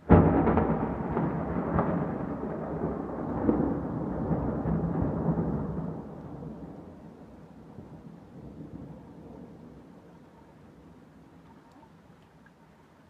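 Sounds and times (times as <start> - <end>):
thunder crack and rumble: 0.0 - 10.0.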